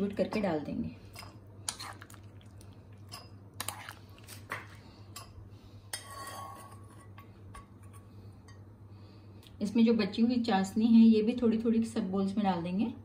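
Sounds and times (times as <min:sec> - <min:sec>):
steady low hum: 0:00.0 - 0:13.0
metal spoon clinking and scraping: 0:05.9 - 0:08.6.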